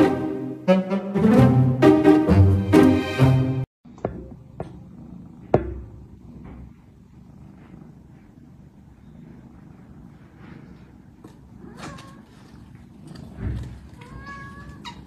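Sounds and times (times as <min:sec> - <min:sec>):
cats purring: 0:03.9 - 0:15.0.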